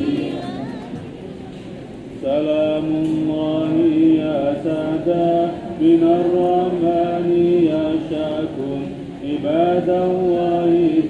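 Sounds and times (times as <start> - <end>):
man chanting into a microphone: 2.2 - 11.0.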